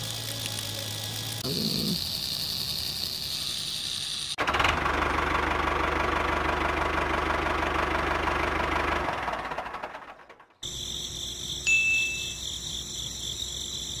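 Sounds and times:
small motor running: 0:00.0 - 0:04.6
brief high beep: 0:11.7 - 0:12.4
high chiming tones: 0:11.7 - 0:12.6.

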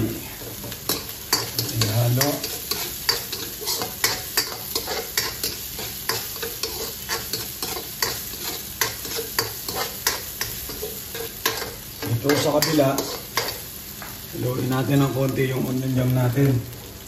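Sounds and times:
food sizzling in oil: 0:00.0 - 0:17.0
metal spatula scraping a wok: 0:00.9 - 0:13.6.

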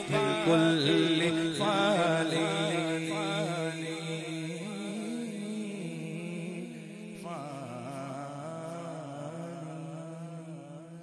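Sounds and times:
man singing devotional song: 0:00.0 - 0:11.0.

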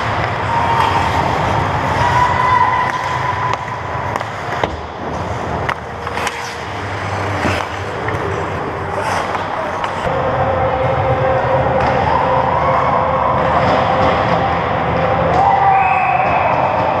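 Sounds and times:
hockey sticks and puck clacking: 0:00.0 - 0:10.1, 0:11.2 - 0:17.0
skates scraping on ice: 0:00.0 - 0:10.1.

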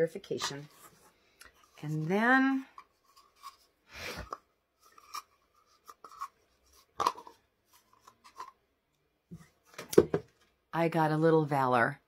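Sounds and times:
hands rustling packaging: 0:00.4 - 0:08.6.

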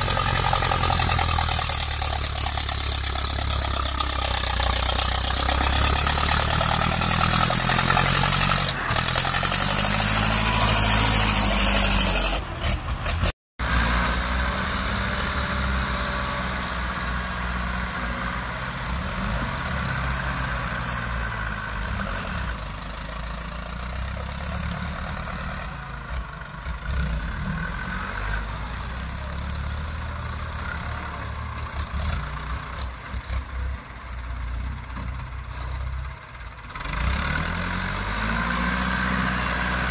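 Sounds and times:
tractor diesel engines under load: 0:00.0 - 0:39.9.

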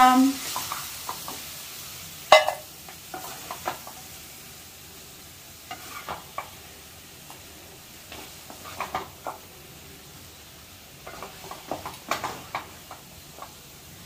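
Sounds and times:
meat sizzling in a pan: 0:00.0 - 0:14.0
spoon scraping and knocking pan: 0:02.3 - 0:04.0, 0:05.7 - 0:06.6, 0:08.1 - 0:09.4, 0:11.0 - 0:13.6.

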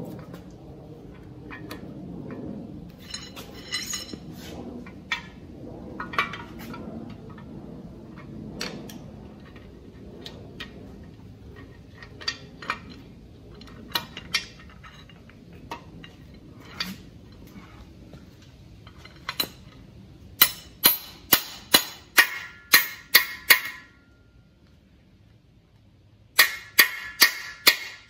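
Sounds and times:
metal tools clinking in engine block: 0:03.0 - 0:04.3
metal rattle: 0:03.0 - 0:04.4.

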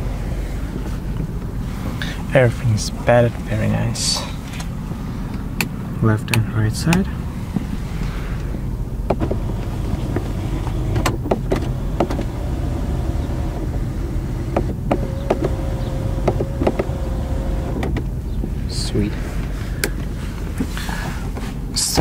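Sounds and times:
low rumble inside car cabin: 0:00.0 - 0:22.0
clicks and knocks of interior fittings: 0:08.4 - 0:12.4, 0:13.2 - 0:18.6, 0:19.4 - 0:21.5.

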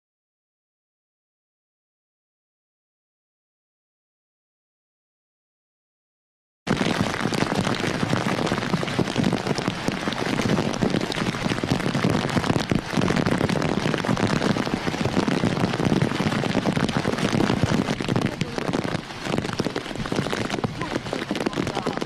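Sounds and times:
heavy rain pelting down: 0:06.7 - 0:22.0.

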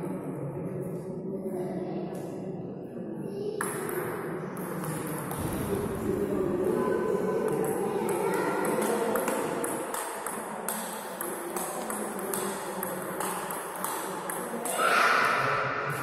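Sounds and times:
table tennis ball hitting paddles: 0:03.6 - 0:05.7, 0:07.5 - 0:14.7
ball bouncing on table: 0:03.6 - 0:06.0, 0:07.5 - 0:14.8.

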